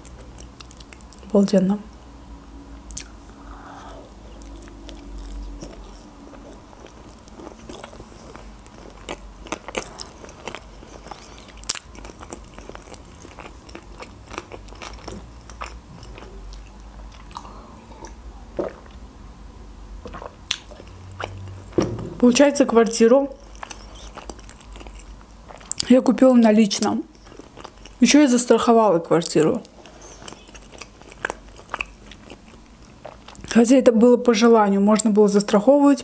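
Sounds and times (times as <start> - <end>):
woman chewing: 2.9 - 19.0, 20.0 - 21.8, 23.4 - 25.9, 27.1 - 28.0, 29.6 - 33.5.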